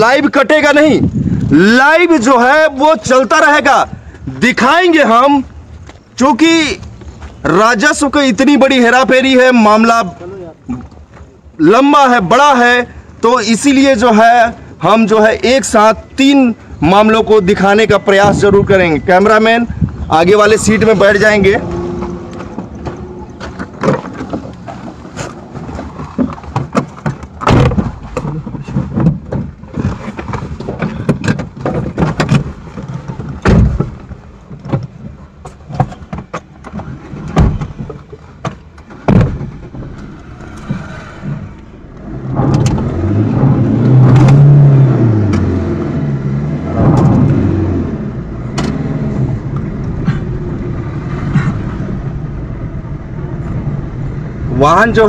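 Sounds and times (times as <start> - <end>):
car engine starting and revving: 20.5 - 23.6, 39.4 - 55.0
car door thumps: 26.5 - 29.9, 33.4 - 34.9, 37.2 - 40.0
knocks and clicks: 41.5 - 44.5.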